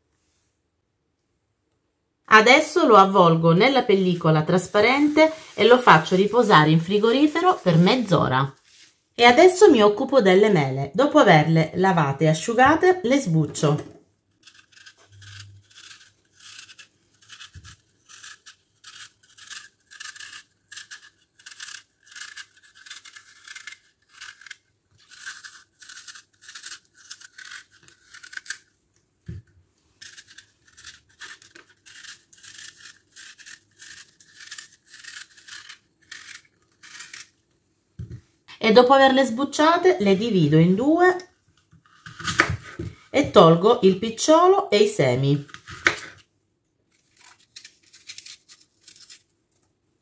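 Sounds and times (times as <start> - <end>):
knife scraping apple skin: 2.9 - 8.8, 14.3 - 37.4, 41.2 - 43.7, 45.4 - 46.2, 46.9 - 49.4.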